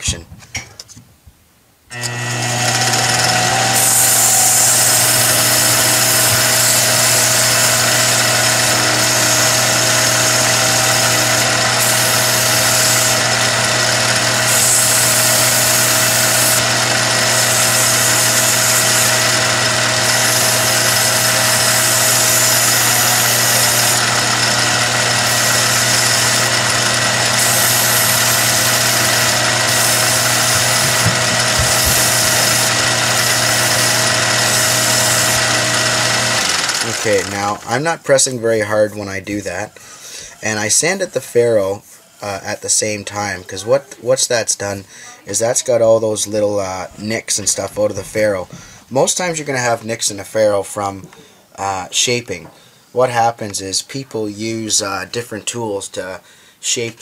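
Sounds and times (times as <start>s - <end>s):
lathe motor humming: 1.9s - 37.8s
sandpaper sanding hiss: 3.8s - 13.3s, 14.2s - 19.4s, 20.0s - 24.3s, 25.1s - 36.0s.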